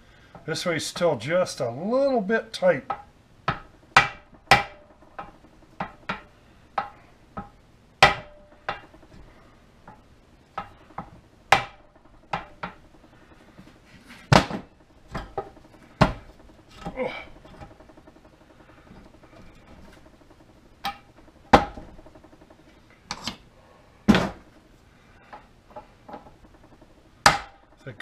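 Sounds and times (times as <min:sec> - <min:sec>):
hammer tapping on metal: 0:02.9 - 0:09.2, 0:09.9 - 0:12.9.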